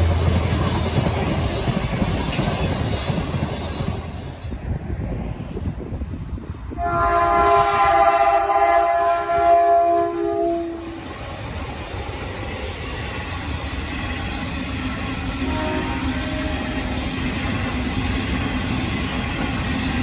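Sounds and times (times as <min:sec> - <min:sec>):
rumble of wagons rolling: 0:00.0 - 0:04.6
locomotive horn chord: 0:06.8 - 0:11.0, 0:15.4 - 0:17.0.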